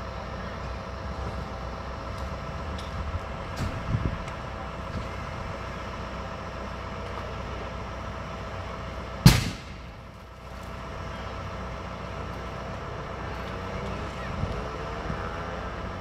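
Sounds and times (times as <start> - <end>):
steady background hum: 0.0 - 16.0
loud bang: 9.2 - 10.0.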